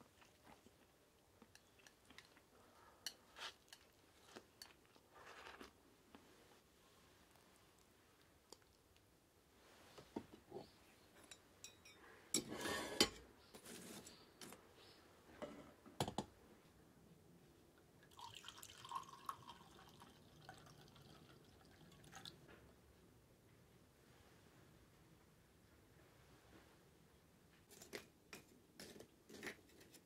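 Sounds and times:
clattering scrape: 12.4 - 14.2
liquid pouring and gurgling: 18.1 - 22.3.

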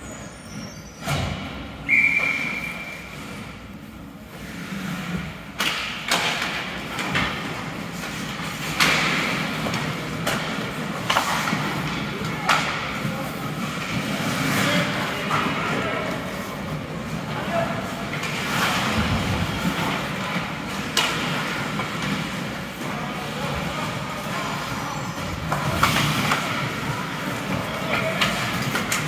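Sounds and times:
high whistle: 1.8 - 3.2
puck and sticks knocking: 18.2 - 22.9.

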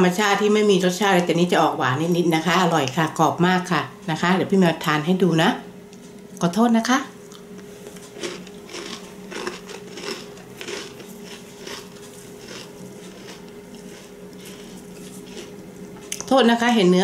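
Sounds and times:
cookie crunching when chewed: 7.3 - 16.3.

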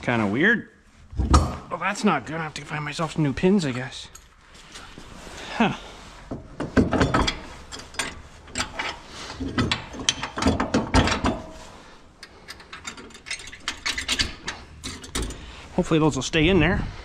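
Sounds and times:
metal clicks and clanks: 6.3 - 15.5.

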